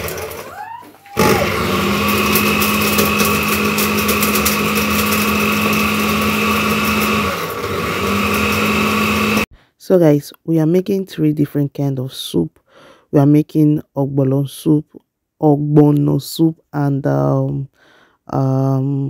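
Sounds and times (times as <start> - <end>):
electric blender motor whining: 0.0 - 9.5.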